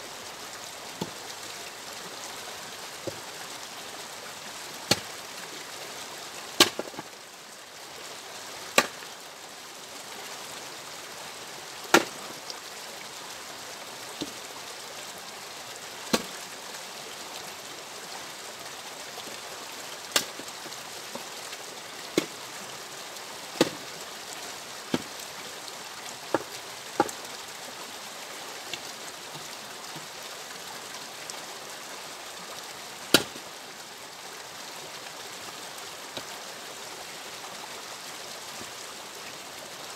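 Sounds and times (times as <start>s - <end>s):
axe splitting firewood: 4.9s - 5.1s, 6.6s - 7.0s, 8.8s - 9.0s, 11.9s - 12.1s, 16.1s - 16.3s, 20.1s - 20.4s, 23.6s - 23.8s, 33.1s - 33.3s.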